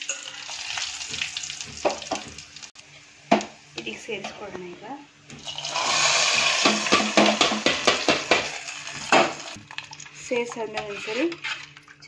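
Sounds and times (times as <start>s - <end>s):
hot oil sizzling: 0.0s - 2.8s, 5.4s - 10.0s
metal pan tapping against pot: 6.6s - 8.5s
spoon stirring in pot: 7.4s - 12.0s.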